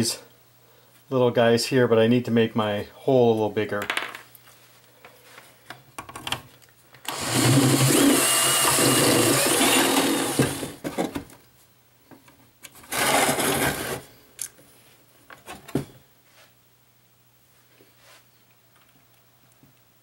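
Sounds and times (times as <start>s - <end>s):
power tool drilling metal: 7.1s - 10.8s.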